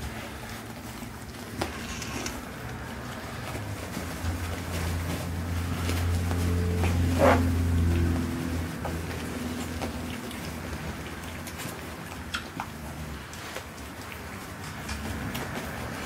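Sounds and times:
low hum: 3.5s - 12.4s.

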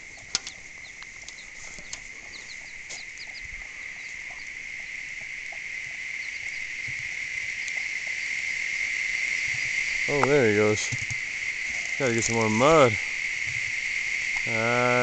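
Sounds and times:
chicks peeping: 0.0s - 13.7s
high insect drone: 0.0s - 15.0s.

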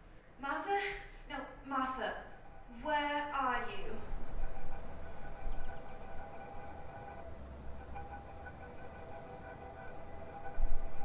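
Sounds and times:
ambient drone of held tones: 3.3s - 11.0s.

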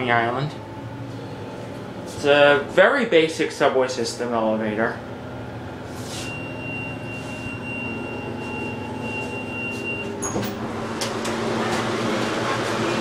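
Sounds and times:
machinery hum: 0.0s - 13.0s
high electronic tone: 6.2s - 10.6s.

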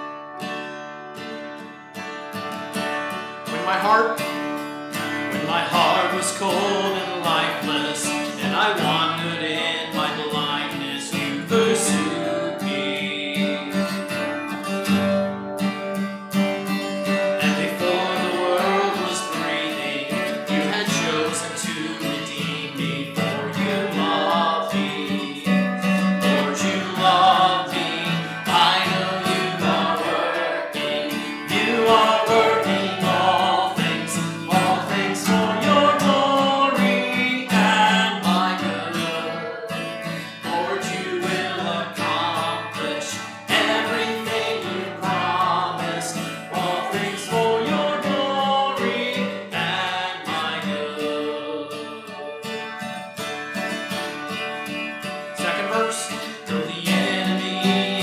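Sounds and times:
strummed acoustic guitars: 0.0s - 58.0s
man and woman singing: 5.3s - 14.1s, 17.4s - 52.8s, 55.4s - 58.0s.

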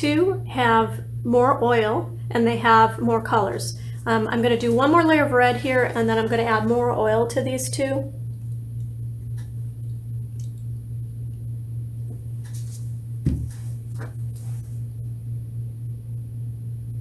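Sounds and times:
steady low hum: 0.0s - 17.0s
bottle thumping on table: 13.2s - 13.7s.

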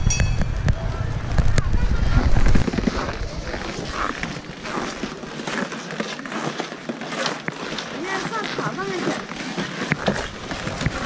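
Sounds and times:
low rumble on microphone: 0.0s - 5.1s
people's voices: 0.0s - 6.6s, 7.9s - 11.0s
footsteps on snow: 0.0s - 11.0s.

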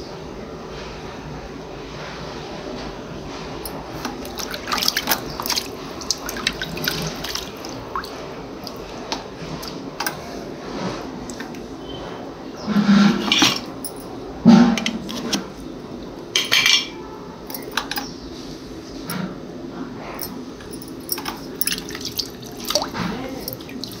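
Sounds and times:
water dripping into plastic bucket: 4.0s - 9.8s, 21.6s - 24.0s.

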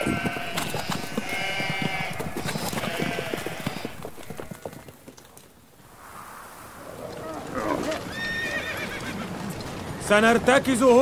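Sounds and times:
sheep bleating: 0.0s - 4.7s
clatter of hoofbeats: 0.0s - 5.6s.

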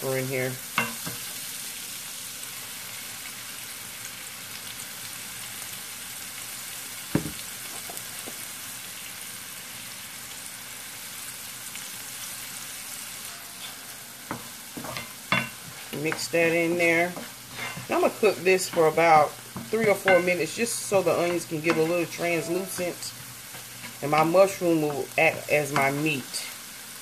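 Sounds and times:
vegetables sizzling in a frying pan: 0.0s - 27.0s.

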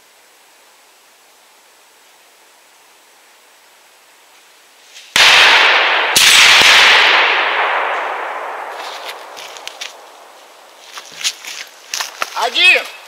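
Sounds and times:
echoing gunshots: 5.1s - 9.4s.

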